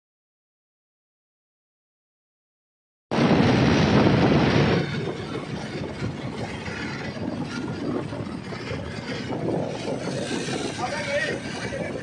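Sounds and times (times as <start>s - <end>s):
tractor rumbling: 3.1s - 12.0s
wind on microphone: 3.1s - 12.0s.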